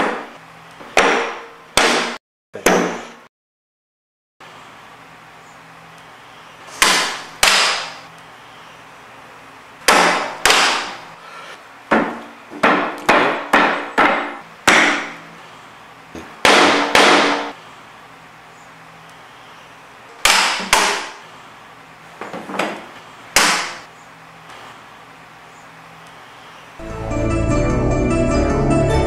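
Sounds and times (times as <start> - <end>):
mallet striking flooring nailer: 0.9 - 3.2, 6.8 - 8.0, 9.9 - 11.0, 11.9 - 15.2, 16.4 - 17.6, 20.2 - 21.2, 23.4 - 23.8.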